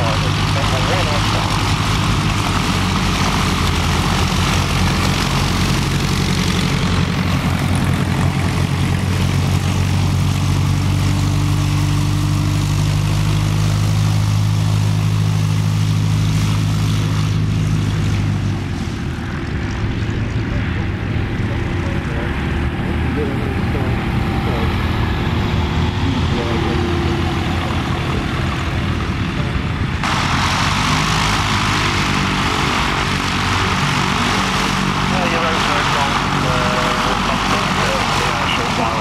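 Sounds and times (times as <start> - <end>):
propeller aircraft engine taxiing: 0.0 - 39.0.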